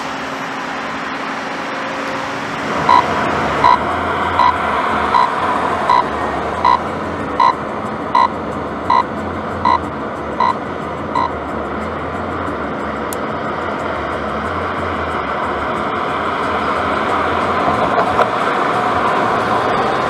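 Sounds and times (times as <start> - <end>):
car road noise: 0.0 - 20.0
electronic warning beep: 2.9 - 6.8, 7.4 - 8.3, 8.9 - 9.8, 10.4 - 10.6, 11.2 - 11.4.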